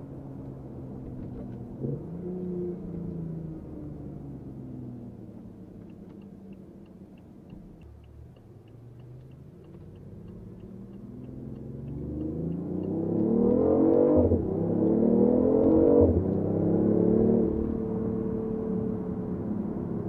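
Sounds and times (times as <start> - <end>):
car engine while driving: 0.0 - 20.0
light even ticking: 3.0 - 16.5.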